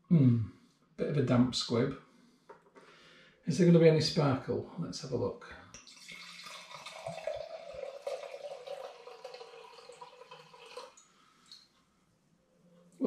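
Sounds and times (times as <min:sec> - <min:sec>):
wine pouring into a glass: 0:05.8 - 0:11.0.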